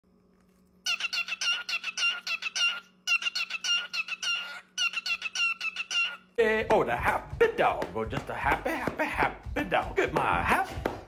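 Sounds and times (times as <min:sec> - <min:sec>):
cockatiel chirping: 0:00.9 - 0:06.3.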